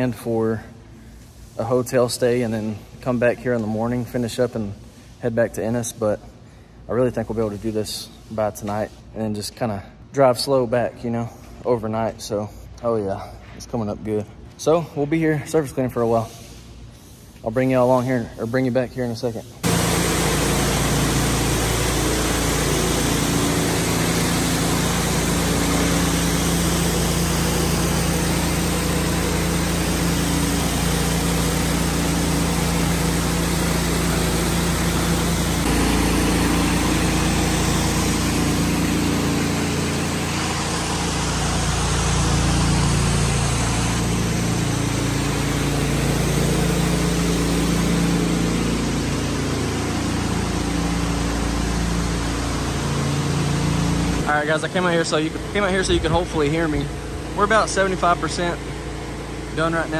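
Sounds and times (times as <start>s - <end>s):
water spraying on concrete: 19.6s - 56.8s
pressure washer engine running: 19.6s - 59.9s.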